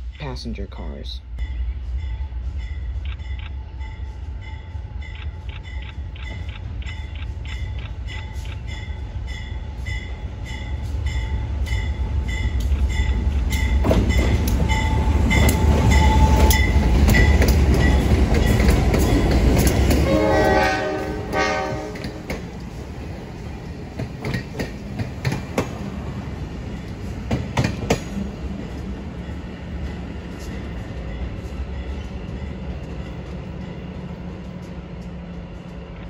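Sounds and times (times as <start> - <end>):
diesel locomotive rumble: 0.0 - 36.0
wheels clacking over rail joints: 12.5 - 28.9
train horn blast: 20.0 - 22.4.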